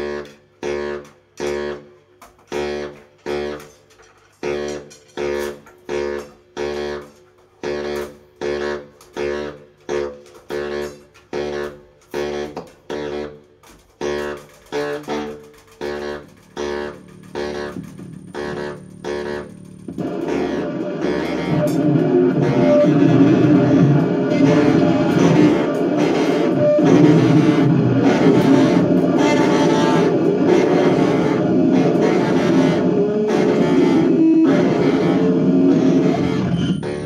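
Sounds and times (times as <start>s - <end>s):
distorted noise music: 10.3s - 37.0s.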